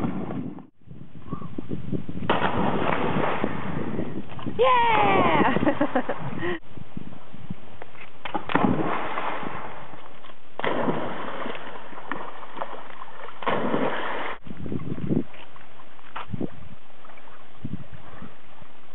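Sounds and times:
dog splashing in river water: 8.3 - 14.4.

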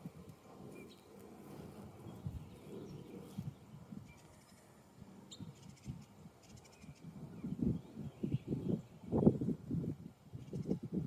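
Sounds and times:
distant bird chirps: 0.4 - 9.2.

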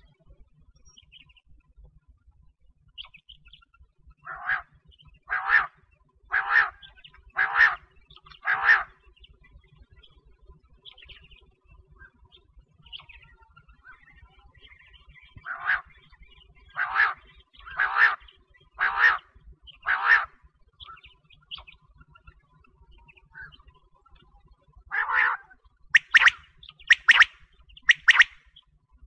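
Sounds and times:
faint small bird chirps: 0.0 - 29.0
quail calling: 4.2 - 4.7, 5.3 - 9.0, 15.4 - 16.0, 16.7 - 20.4, 24.9 - 28.4.

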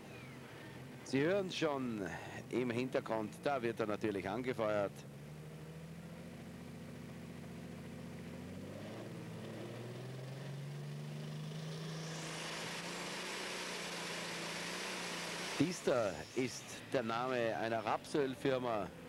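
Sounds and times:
tractor diesel engine running: 11.9 - 19.0.

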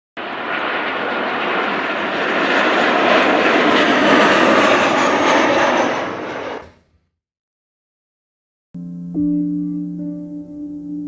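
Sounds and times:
jet airliner engine rush: 0.2 - 6.8.

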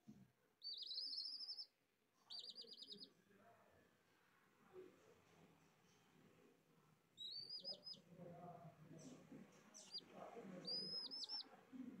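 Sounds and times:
faint low background noise: 0.0 - 12.0
baby chick peeping: 0.6 - 3.2, 7.2 - 8.1, 9.0 - 12.0.

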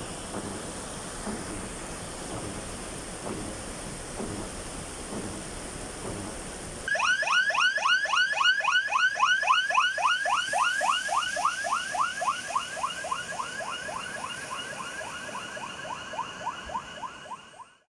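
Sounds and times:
rain: 0.0 - 17.8
yelping emergency siren: 6.9 - 17.9.

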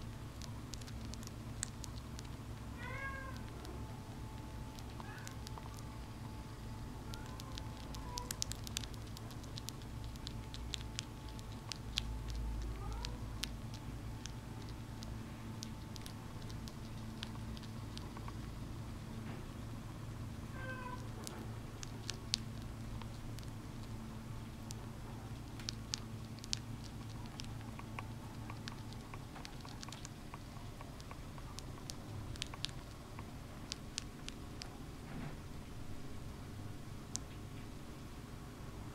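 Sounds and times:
hamster chewing with tiny clicks: 0.0 - 38.9
steady low hum: 0.0 - 38.9.

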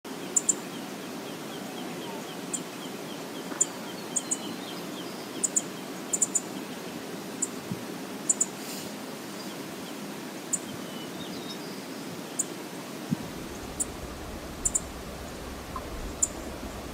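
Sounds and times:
low rushing background noise: 0.1 - 16.9
birds calling: 0.2 - 7.6, 13.1 - 16.9.

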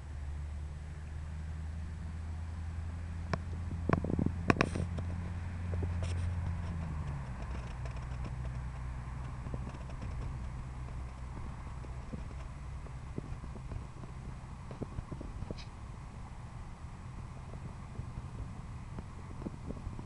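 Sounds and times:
distant quad bike engine: 0.0 - 20.0.

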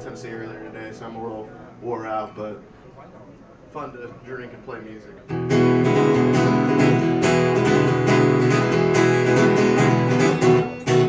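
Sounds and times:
acoustic guitar strumming chords: 5.3 - 11.0.

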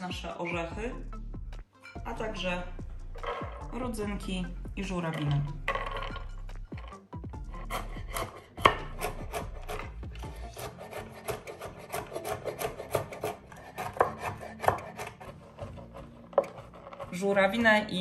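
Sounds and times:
knife chopping on wooden board: 7.6 - 17.1.

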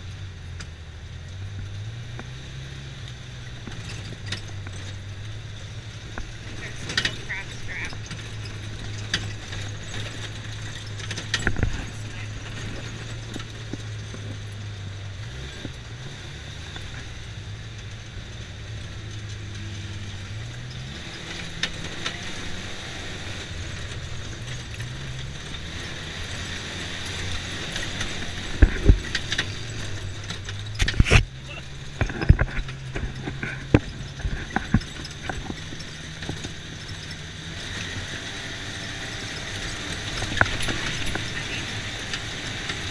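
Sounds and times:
off-road vehicle engine: 0.0 - 42.9
vehicle body rattles: 0.0 - 42.9
sharp knocks over bumps: 1.8 - 16.1, 23.7 - 38.1.

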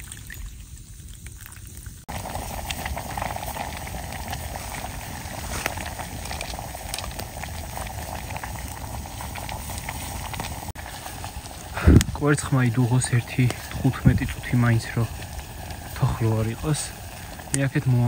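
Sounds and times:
small crackles: 0.0 - 18.0
water boiling and bubbling: 0.0 - 18.0.

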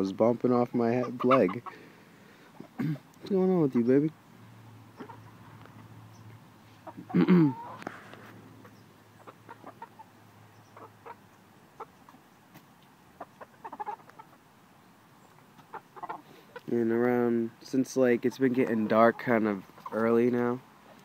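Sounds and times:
chickens clucking: 0.0 - 21.0
chicken squawk: 6.7 - 12.0, 13.2 - 14.4, 15.6 - 16.7.

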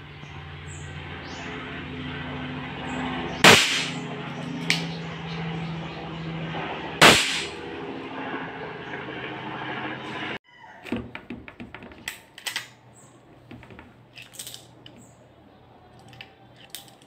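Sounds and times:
airsoft revolver shots: 3.4 - 4.1, 7.0 - 7.6.

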